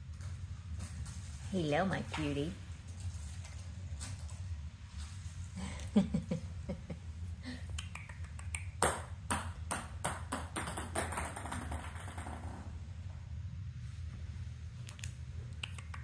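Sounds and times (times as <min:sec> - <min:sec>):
ping-pong ball bouncing on wood floor: 0:08.8 - 0:12.7.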